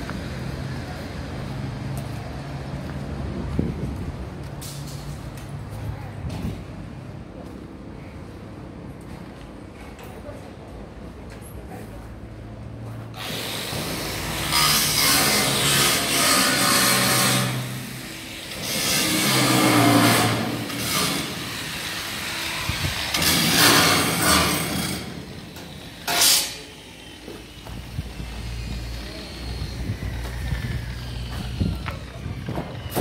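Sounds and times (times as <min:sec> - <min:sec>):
handheld power tool running: 0:13.2 - 0:32.3.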